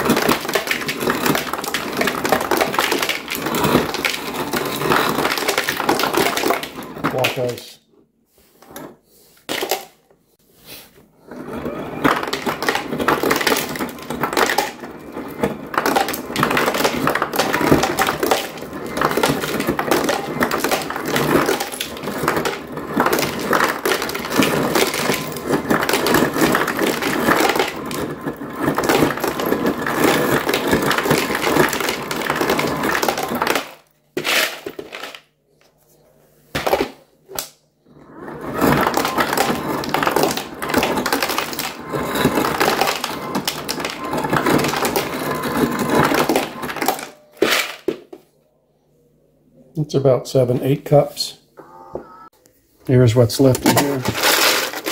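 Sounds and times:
ice chips clattering into bowl: 0:00.0 - 0:07.7, 0:12.0 - 0:35.3, 0:38.4 - 0:47.9, 0:53.4 - 0:54.9
ice crusher grinding: 0:00.0 - 0:07.7, 0:11.2 - 0:35.2, 0:36.6 - 0:47.9, 0:53.4 - 0:54.9.

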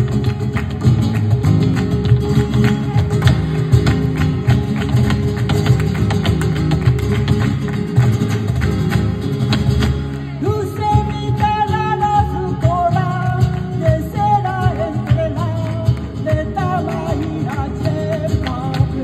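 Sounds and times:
handclaps: 0:00.0 - 0:19.0
percussion beat: 0:00.0 - 0:19.0
strummed guitars: 0:00.0 - 0:19.0
person singing: 0:10.2 - 0:19.0.

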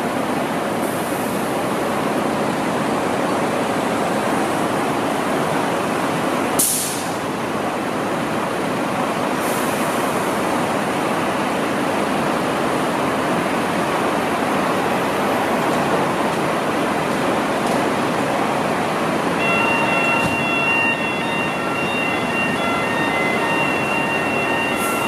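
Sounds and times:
air brake hiss: 0:06.6 - 0:07.2, 0:09.4 - 0:10.2, 0:24.8 - 0:25.0.

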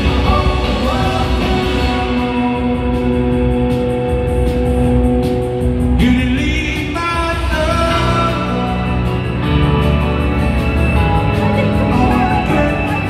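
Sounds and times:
person singing: 0:00.0 - 0:03.6, 0:06.0 - 0:09.9, 0:10.6 - 0:13.0
electric guitars: 0:00.0 - 0:13.0
live rock band playing: 0:00.0 - 0:13.0.

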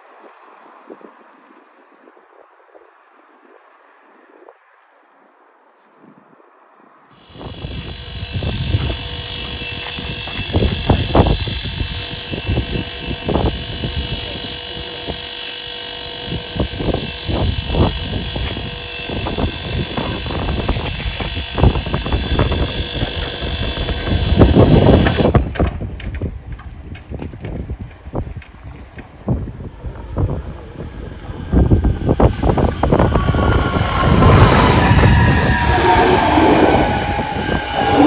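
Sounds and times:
level crossing electronic ringing: 0:07.1 - 0:25.5, 0:31.8 - 0:38.0
wind buffeting microphone: 0:07.2 - 0:15.2, 0:16.2 - 0:38.0.

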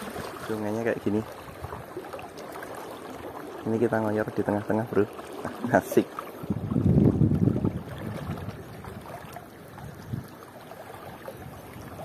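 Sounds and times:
river water rushing: 0:00.0 - 0:03.7, 0:07.8 - 0:12.0
wind rumble on microphone: 0:06.4 - 0:12.0.

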